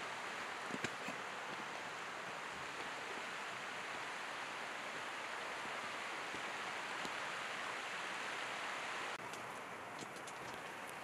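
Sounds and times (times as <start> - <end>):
flowing water rushing: 0.0 - 11.0.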